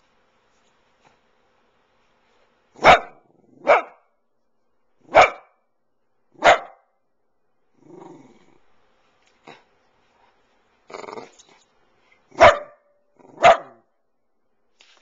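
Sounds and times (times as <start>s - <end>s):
dog barking sharply: 2.8s - 4.1s, 5.1s - 5.6s, 6.4s - 6.9s, 12.4s - 13.8s.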